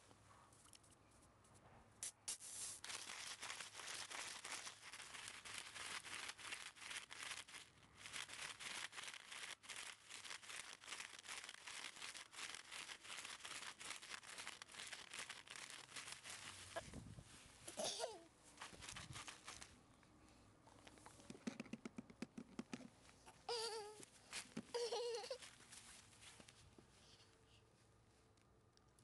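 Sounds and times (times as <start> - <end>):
puppy rustling through dry straw: 2.4 - 17.6, 18.6 - 19.7.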